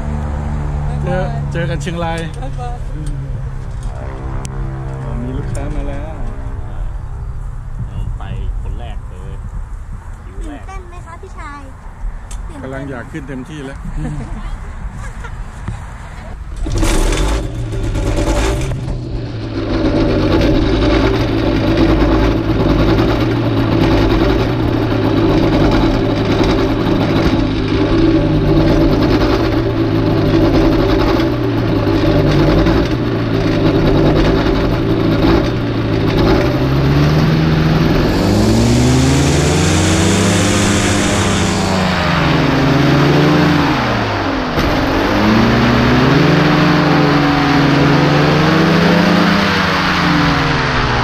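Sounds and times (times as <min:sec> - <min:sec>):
paramotor engine and propeller: 0:00.0 - 0:10.6, 0:16.3 - 0:51.0
rushing noise: 0:16.4 - 0:51.0.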